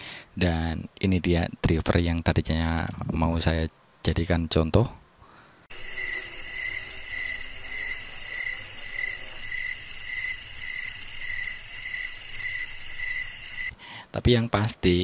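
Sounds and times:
crickets chirping: 0:05.7 - 0:13.7.

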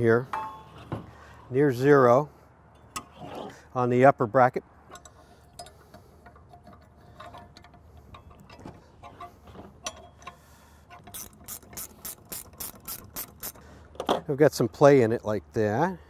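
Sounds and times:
metal brackets clicking and tapping: 0:04.9 - 0:14.3
ratcheting wrench clicking: 0:07.1 - 0:13.6.

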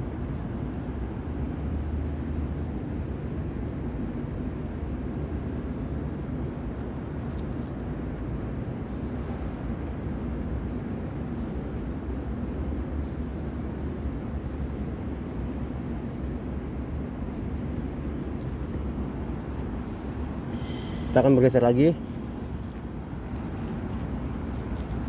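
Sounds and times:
low ambient rumble: 0:13.9 - 0:25.0.

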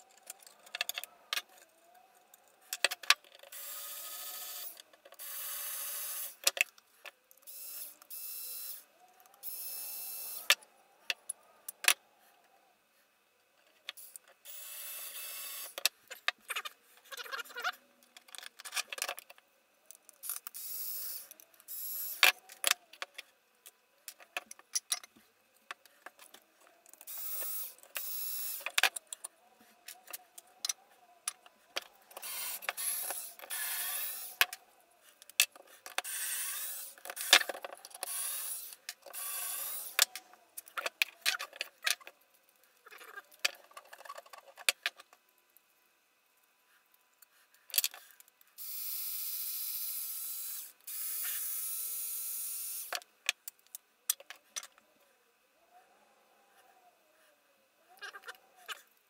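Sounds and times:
cordless screwdriver running: 0:32.2 - 0:34.4, 0:38.1 - 0:40.0.

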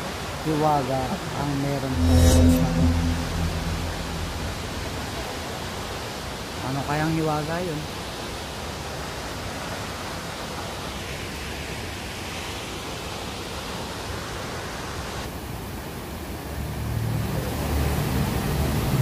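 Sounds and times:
low steady hum: 0:01.6 - 0:05.6.

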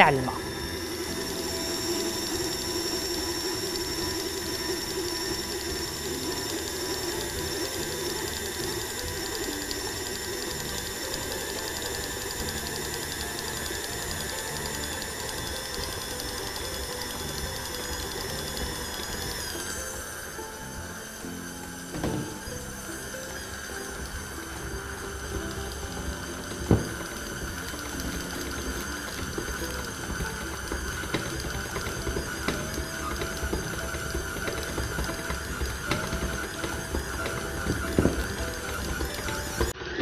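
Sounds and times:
stand mixer motor whining: 0:00.0 - 0:40.0.

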